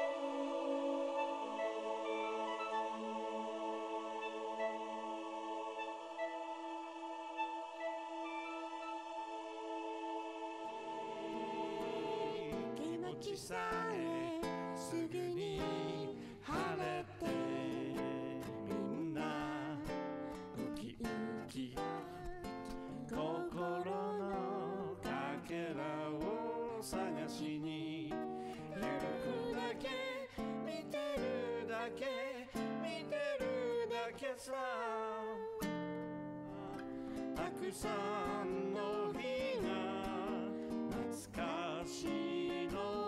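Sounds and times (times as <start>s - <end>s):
strummed acoustic guitar: 10.7s - 34.4s, 35.5s - 43.0s
man singing into a microphone: 12.4s - 35.6s, 36.6s - 43.0s.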